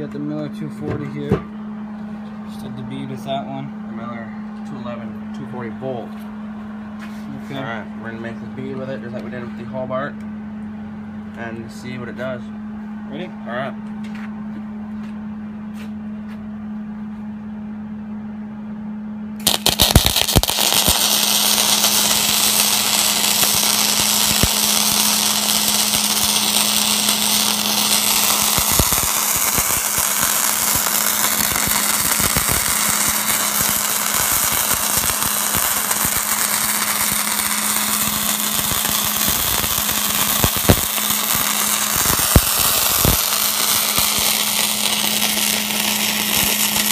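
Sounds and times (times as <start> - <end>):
sharp welding pops: 19.4 - 46.9
welder humming: 19.4 - 46.9
welding arc crackling and sizzling: 19.4 - 46.9.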